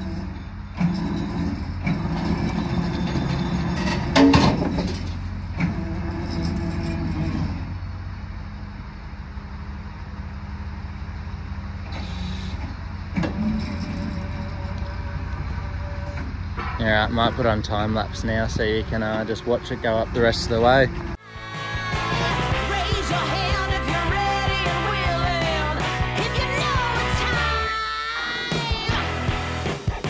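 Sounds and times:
metal squeal: 0.0 - 7.8, 11.9 - 21.2
track chains clanking and creaking: 0.0 - 21.2
truck engine running: 0.0 - 27.7.

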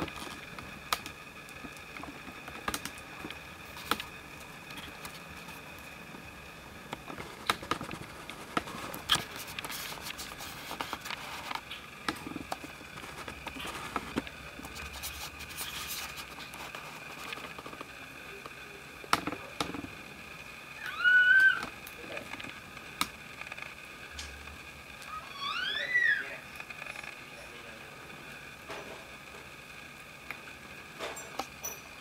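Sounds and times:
kittens rustling against fur: 7.0 - 17.9.

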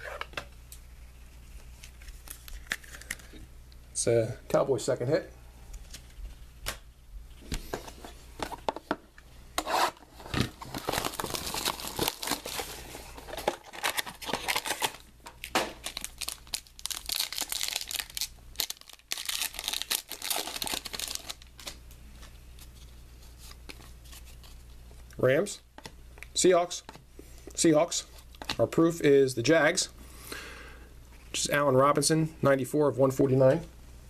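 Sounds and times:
wrapping tearing and crinkling: 10.2 - 24.8.

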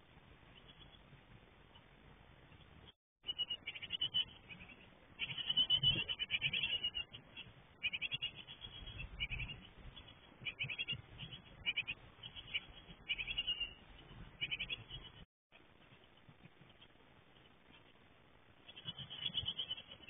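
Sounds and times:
nestlings begging calls: 3.3 - 13.8, 14.4 - 15.2, 18.7 - 20.0.

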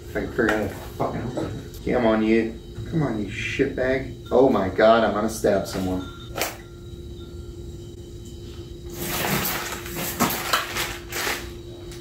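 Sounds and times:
plastic packaging crinkling: 9.0 - 12.0.

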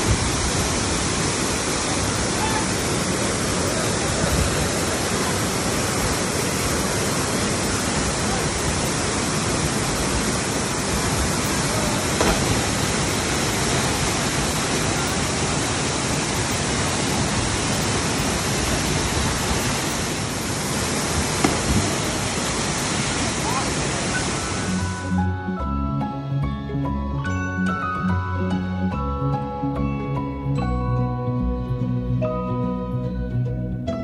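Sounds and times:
steady rushing noise: 0.0 - 25.0.

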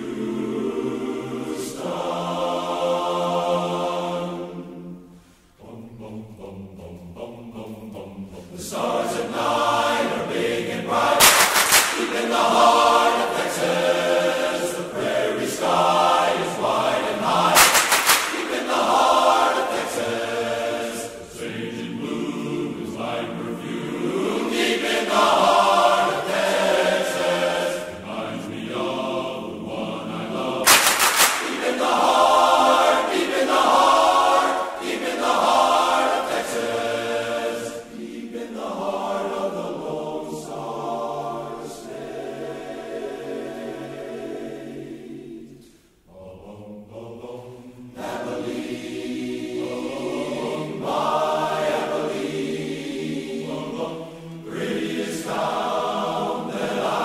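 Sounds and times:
men's chorus singing in harmony: 0.0 - 57.0
sharp cracks: 11.2 - 12.6, 17.3 - 19.0, 30.7 - 32.2.

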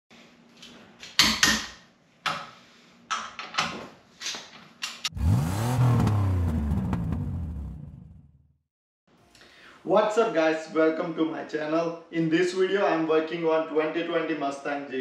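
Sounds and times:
car engine revving: 5.1 - 8.5.

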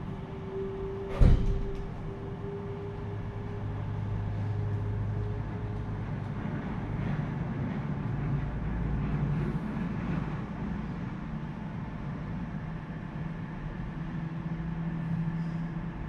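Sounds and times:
vehicle interior rumble and hum: 0.0 - 16.0.

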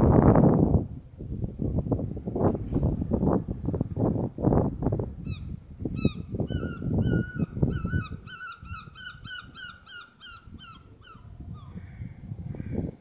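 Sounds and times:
gull calling: 6.0 - 12.9.

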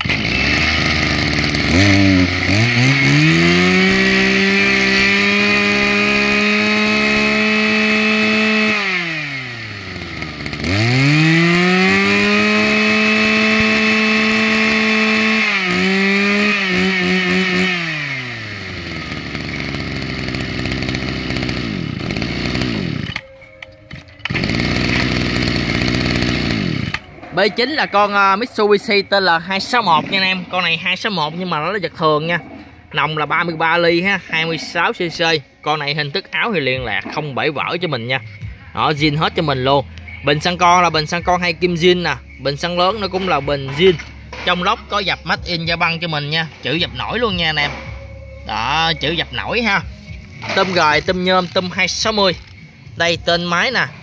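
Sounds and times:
brush-cutter engine revving: 0.0 - 23.3, 23.9 - 27.1, 38.8 - 53.9.

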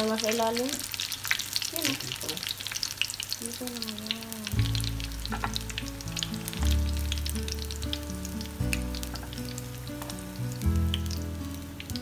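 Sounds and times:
oil sizzling and popping: 0.0 - 12.0
background music with low notes: 4.4 - 12.0.

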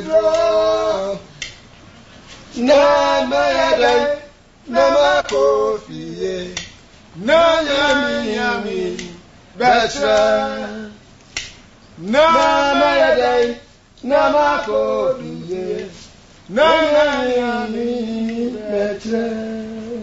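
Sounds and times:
person singing unaccompanied: 0.0 - 1.7, 2.5 - 11.1, 12.0 - 20.0
sharp click: 11.2 - 11.7.

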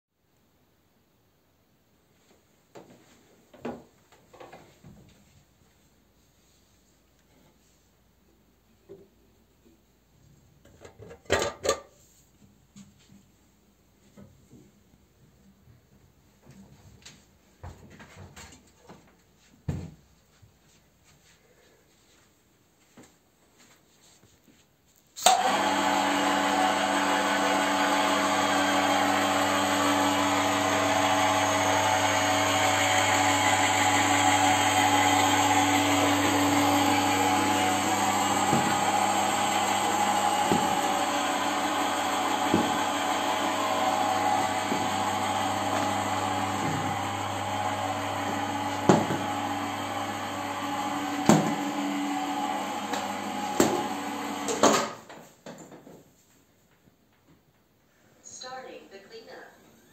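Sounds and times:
electric motor running: 25.3 - 54.5.

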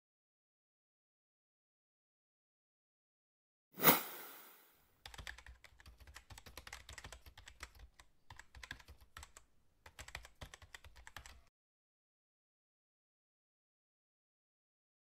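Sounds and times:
keyboard typing: 5.0 - 11.5.

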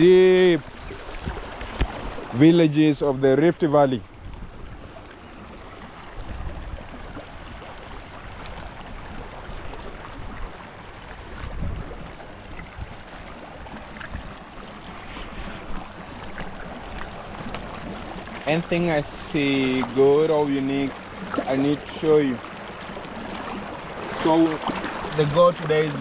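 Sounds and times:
wind buffeting microphone: 0.0 - 2.4, 11.2 - 18.2
stream rippling over rocks: 0.0 - 3.9, 4.6 - 26.0.

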